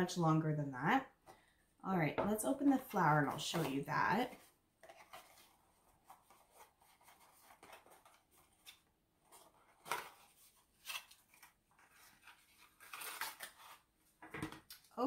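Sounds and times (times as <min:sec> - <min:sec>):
packaging box rustling: 0:03.4 - 0:13.9.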